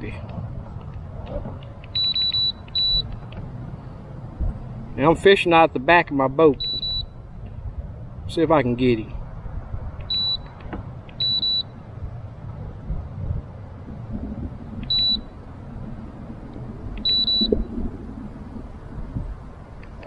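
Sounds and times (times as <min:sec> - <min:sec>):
short high electronic beeps: 0:02.0 - 0:03.0, 0:06.6 - 0:07.1, 0:17.0 - 0:17.7
low rumble: 0:11.7 - 0:19.8.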